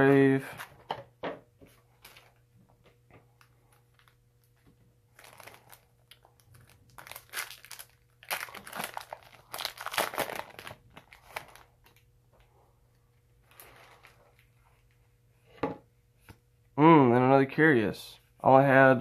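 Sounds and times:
foil wrapper crinkling: 3.6 - 12.0.

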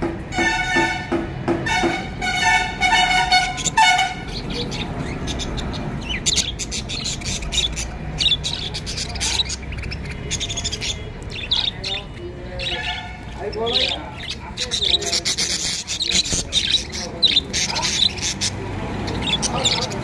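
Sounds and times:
loud honk-like bird calls: 0.3 - 4.5
budgerigars chattering: 1.7 - 20.0.

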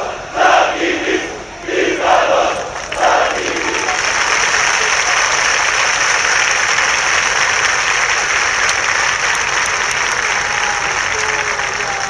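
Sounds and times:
crowd clapping: 2.6 - 12.0.

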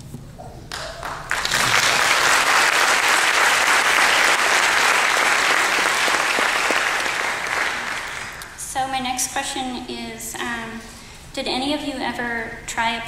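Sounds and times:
audience applauding: 0.7 - 8.6.

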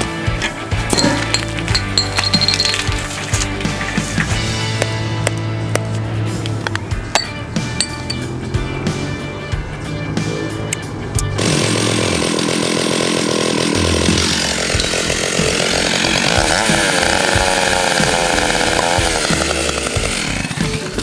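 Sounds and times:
chainsaw revving: 10.0 - 21.0.

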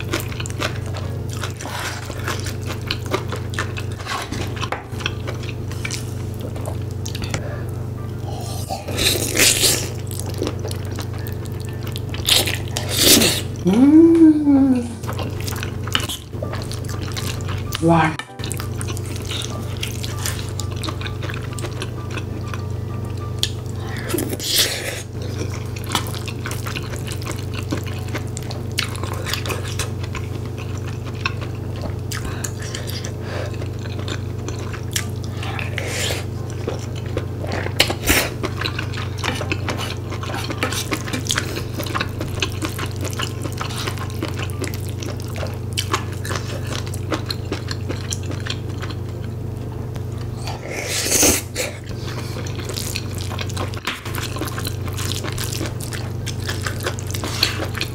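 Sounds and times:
wet mouth eating sounds: 8.2 - 22.6, 23.4 - 49.1, 50.3 - 57.9.

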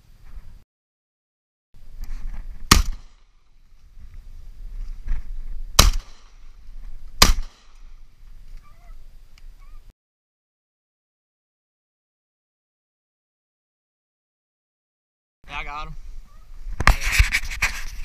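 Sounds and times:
shotgun shots: 2.7 - 3.3, 5.8 - 6.4, 7.2 - 7.9.

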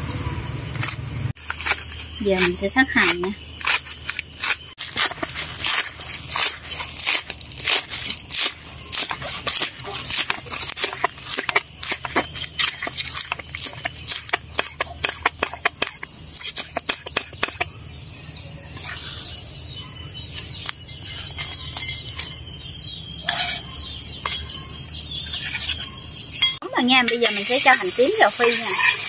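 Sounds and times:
high-pitched chirring: 11.4 - 29.0.

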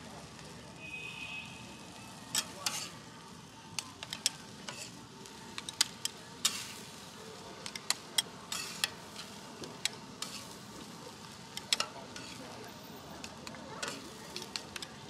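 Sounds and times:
food sizzling on griddle: 0.0 - 15.0
metal spatulas clacking on griddle: 2.3 - 2.9, 4.0 - 5.0, 5.6 - 6.8, 7.6 - 10.6, 11.5 - 12.5, 13.2 - 15.0.

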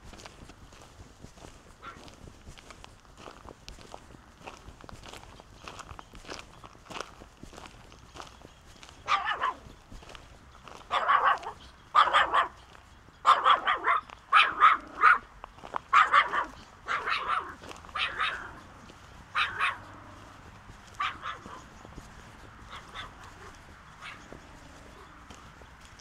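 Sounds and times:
dog barking: 1.8 - 2.1, 9.0 - 9.7, 10.9 - 12.6, 13.2 - 15.3, 15.9 - 18.6, 19.3 - 21.8, 22.6 - 25.2.

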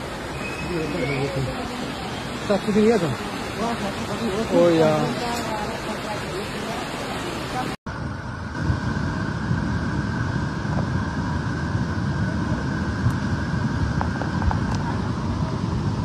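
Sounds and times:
torrent of water rushing: 0.0 - 16.0.

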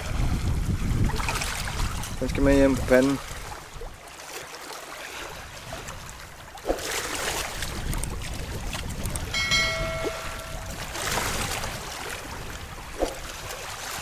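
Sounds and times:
seawater lapping at shore: 0.0 - 14.0
short steady tone: 9.4 - 11.1.

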